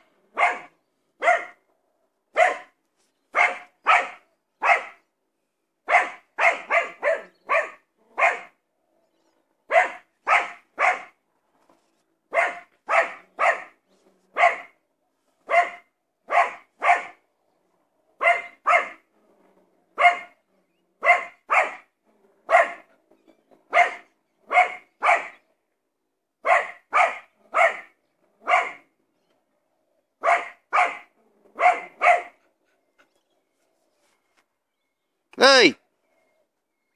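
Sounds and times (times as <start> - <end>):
dog barking: 0.3 - 1.6, 2.3 - 5.1, 5.8 - 8.6, 9.7 - 11.2, 12.3 - 14.8, 15.4 - 17.2, 18.2 - 19.0, 20.0 - 22.9, 23.7 - 25.4, 26.4 - 28.9, 30.2 - 32.4.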